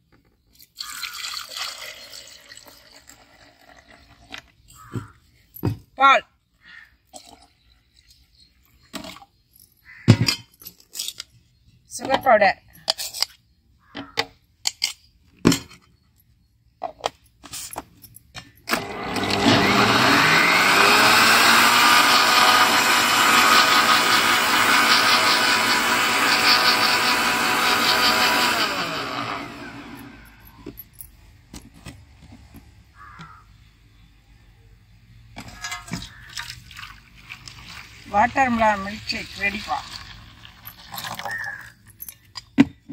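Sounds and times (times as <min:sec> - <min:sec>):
blender motor running: 0:18.7 - 0:30.4.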